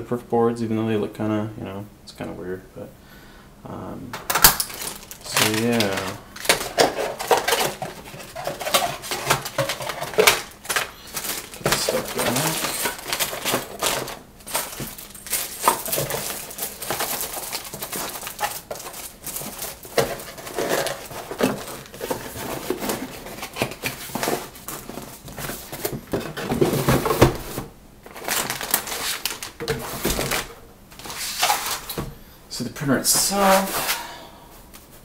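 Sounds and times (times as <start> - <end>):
plastic and foil bags crinkling: 4.1 - 32.1
cardboard rustling and scraping: 4.7 - 32.1, 33.0 - 34.0.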